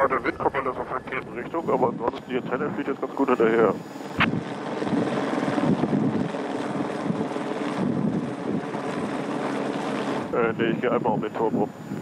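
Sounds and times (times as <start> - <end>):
helicopter running overhead: 0.0 - 12.0
wind blowing on microphone: 3.6 - 9.3, 10.1 - 12.0.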